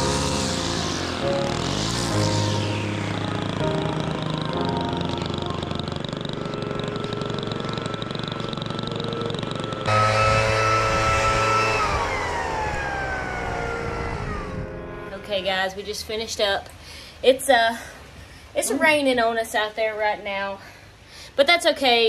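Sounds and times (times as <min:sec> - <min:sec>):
small engine running: 0:00.0 - 0:15.4.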